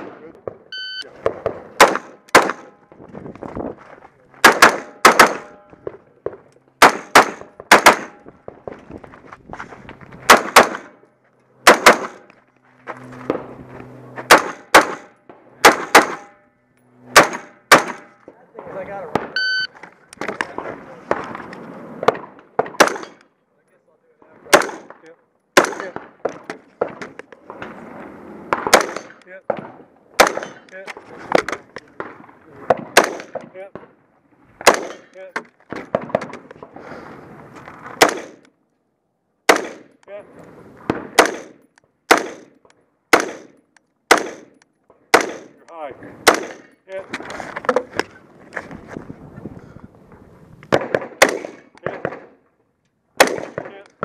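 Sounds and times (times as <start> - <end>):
rifle shots: 1.3 - 2.7, 4.4 - 5.6, 6.8 - 8.2, 10.2 - 11.0, 11.6 - 12.3, 14.3 - 16.3, 17.1 - 18.2, 22.0 - 23.2, 24.5 - 25.0, 25.6 - 27.0, 28.5 - 30.6, 32.0 - 33.4, 34.6 - 35.2, 38.0 - 38.5, 39.5 - 39.9, 40.9 - 45.6, 46.2 - 46.7, 50.7 - 52.4, 53.2 - 53.8.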